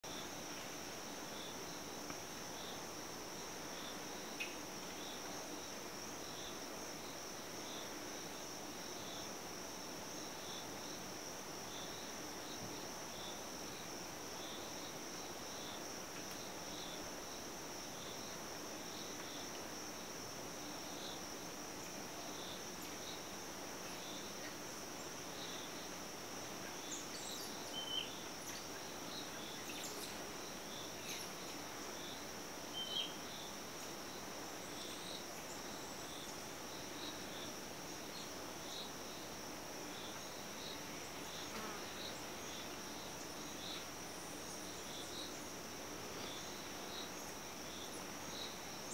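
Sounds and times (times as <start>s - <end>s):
insect chirping: 0.1s - 48.9s.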